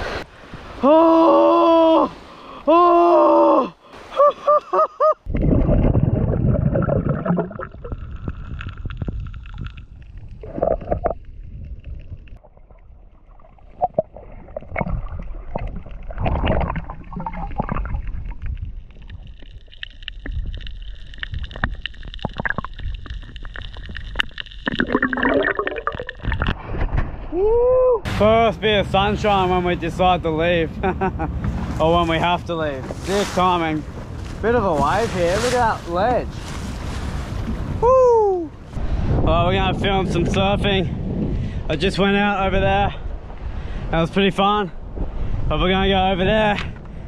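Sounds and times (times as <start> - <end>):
underwater sloshing and gurgling: 5.2 - 27.3
knocks underwater: 13.7 - 27.3.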